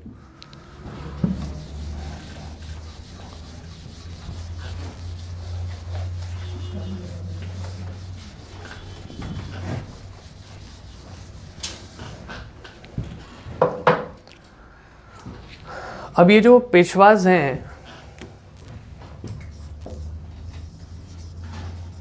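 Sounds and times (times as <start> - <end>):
duster scrubbing a whiteboard: 0.5 - 13.1, 18.6 - 22.0.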